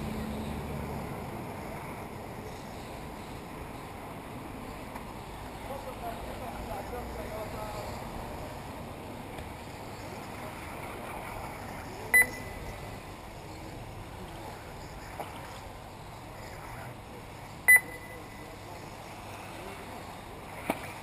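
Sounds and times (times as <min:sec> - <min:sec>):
steady background noise: 0:00.0 - 0:21.0
short electronic beeps: 0:12.1 - 0:13.0, 0:17.7 - 0:18.5.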